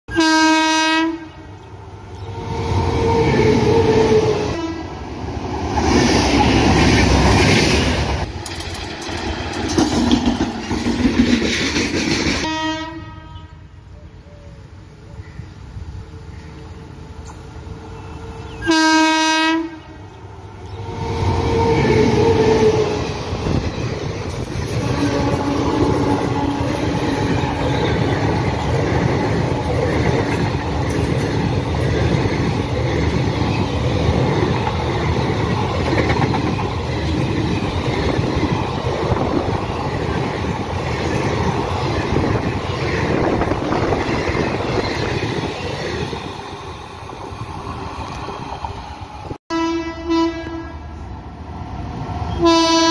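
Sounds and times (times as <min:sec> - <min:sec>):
train horn blast: 0:00.1 - 0:01.7, 0:02.4 - 0:05.0, 0:12.4 - 0:13.8, 0:18.6 - 0:20.1, 0:20.9 - 0:23.0, 0:24.7 - 0:27.9, 0:49.5 - 0:51.0, 0:52.3 - 0:52.9
train rumble: 0:00.1 - 0:52.9
wheels clacking over rail joints: 0:05.6 - 0:12.5, 0:20.6 - 0:49.2.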